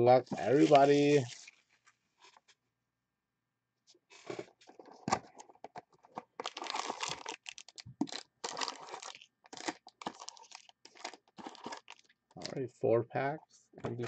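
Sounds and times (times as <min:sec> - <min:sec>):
cardboard and foil crinkling: 0:00.3 - 0:02.4, 0:06.1 - 0:12.6.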